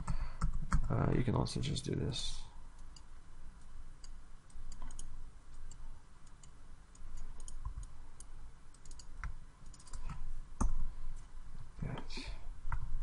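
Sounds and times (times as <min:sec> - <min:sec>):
low background hum: 0:00.0 - 0:13.0
mouse and keyboard clicks: 0:04.0 - 0:10.8.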